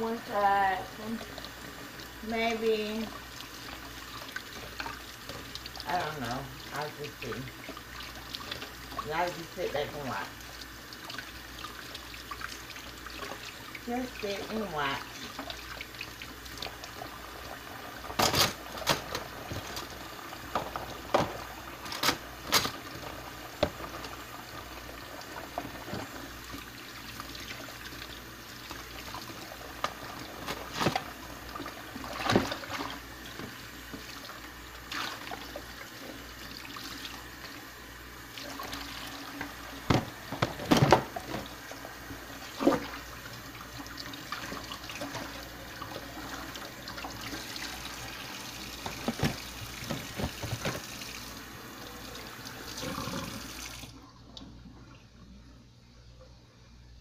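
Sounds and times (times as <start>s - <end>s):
tap water running into sink: 0.1s - 54.6s.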